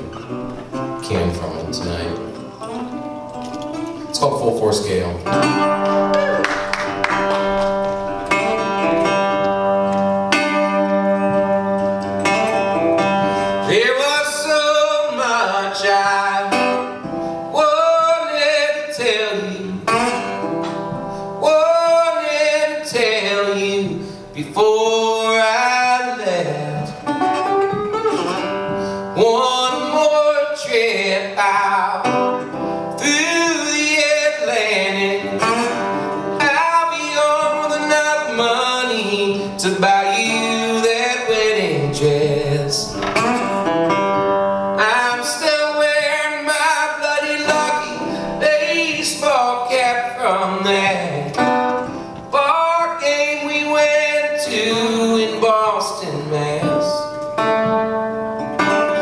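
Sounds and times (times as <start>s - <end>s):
man singing folk song: 0.0s - 2.9s, 6.9s - 59.0s
resonator guitar plucked: 0.0s - 17.4s.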